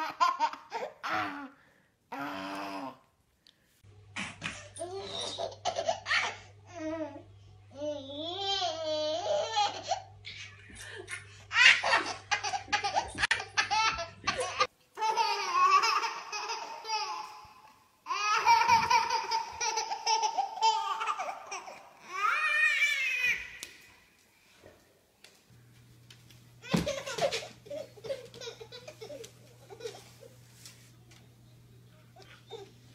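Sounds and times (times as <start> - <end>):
baby laughing: 4.5 - 6.4, 8.2 - 23.6, 26.6 - 30.3.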